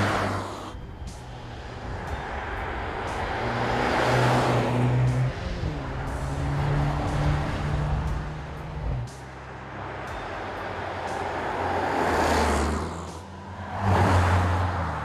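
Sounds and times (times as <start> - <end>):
car driving past: 0.0 - 9.1.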